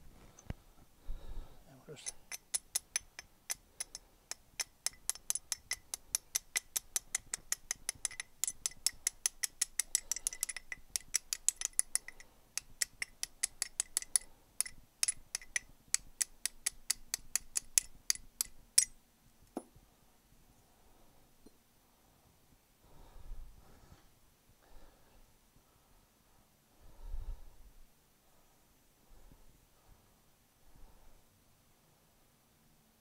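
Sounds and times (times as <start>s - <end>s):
light metallic tapping: 1.9s - 19.8s.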